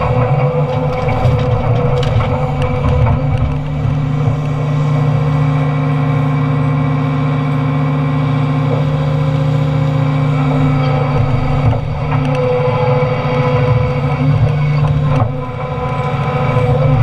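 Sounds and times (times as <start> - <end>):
excavator engine and hydraulics droning: 0.0 - 17.0.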